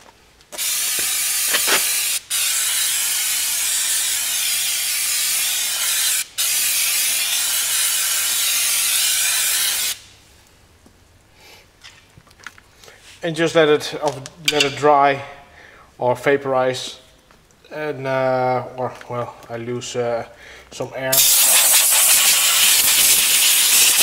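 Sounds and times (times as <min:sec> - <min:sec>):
aerosol spray hissing: 0:00.5 - 0:10.1, 0:21.1 - 0:24.0.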